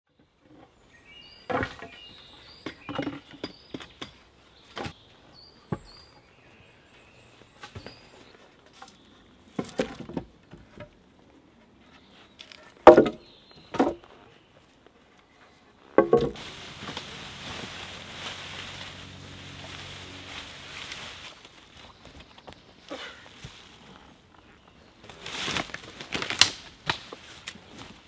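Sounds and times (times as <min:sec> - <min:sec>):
songbird chirping: 0:00.1 - 0:10.2, 0:10.8 - 0:25.9
wooden logs knocking: 0:12.8 - 0:14.1, 0:15.9 - 0:16.5.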